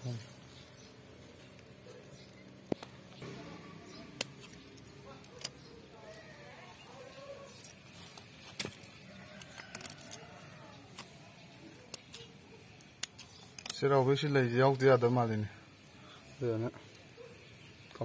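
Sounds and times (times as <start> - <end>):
faint background sounds: 0.0 - 18.0
scissors snipping plant stems: 3.9 - 14.2.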